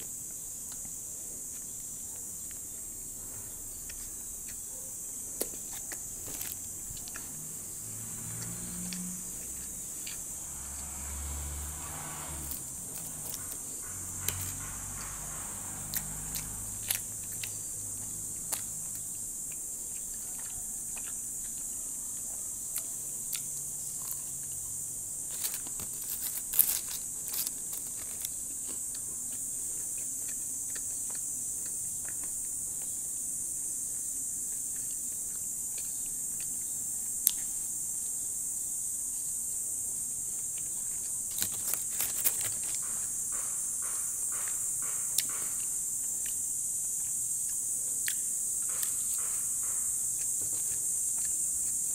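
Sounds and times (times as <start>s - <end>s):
steady high hiss: 0.0s - 51.9s
chewing crackles: 0.6s - 11.0s, 12.4s - 37.6s, 40.3s - 51.9s
paper bag rustling: 25.3s - 28.3s, 41.3s - 42.8s.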